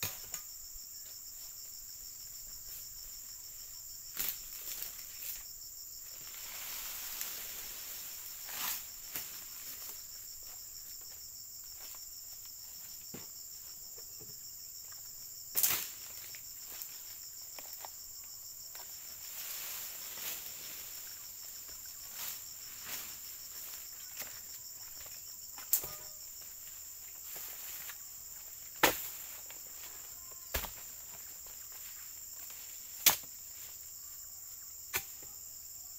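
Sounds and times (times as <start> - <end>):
insect chorus: 0.0 - 35.9
sharp knocks of pole tool: 34.9 - 35.2.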